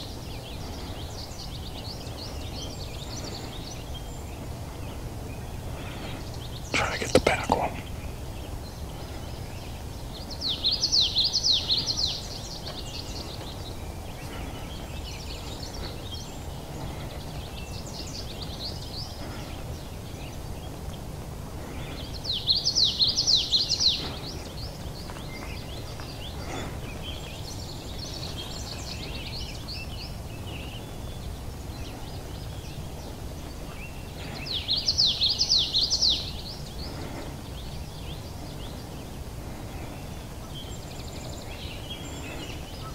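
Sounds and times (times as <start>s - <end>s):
low background noise: 0.0s - 42.9s
other birds singing faintly: 0.0s - 42.9s
songbird singing high-pitched song: 21.8s - 26.4s, 27.1s - 39.1s.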